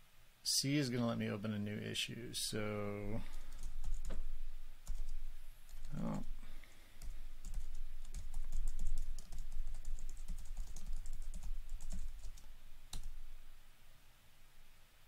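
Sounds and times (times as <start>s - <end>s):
typing on computer keyboard: 3.3s - 4.2s, 4.8s - 6.3s, 7.0s - 13.2s.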